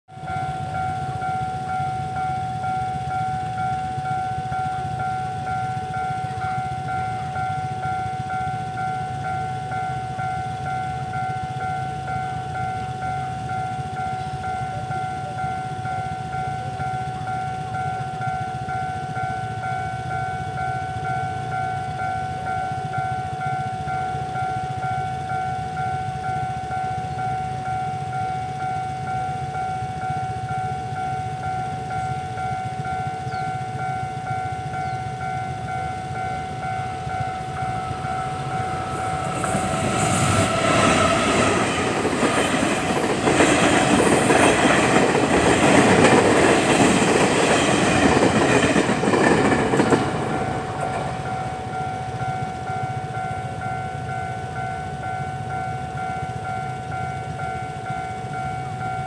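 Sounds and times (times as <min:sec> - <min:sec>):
level crossing bell ringing: 0:00.1 - 0:59.0
train rumble: 0:00.1 - 0:59.0
wheels clacking over rails: 0:37.0 - 0:51.8.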